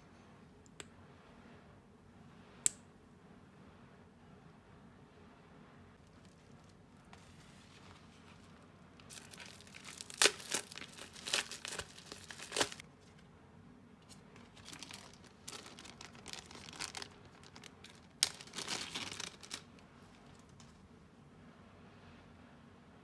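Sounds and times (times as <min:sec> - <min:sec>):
plastic bags rustling: 0:06.0 - 0:12.8, 0:14.1 - 0:20.6
plastic crinkling: 0:06.0 - 0:12.9, 0:14.1 - 0:20.8
packet tearing open: 0:09.1 - 0:12.8, 0:14.4 - 0:19.8.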